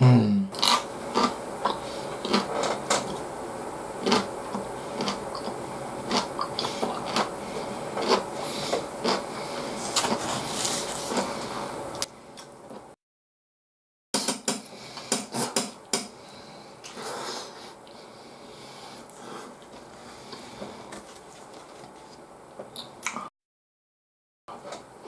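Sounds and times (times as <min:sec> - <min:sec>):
man chewing food: 0:00.6 - 0:03.3, 0:04.0 - 0:12.9, 0:16.8 - 0:23.3.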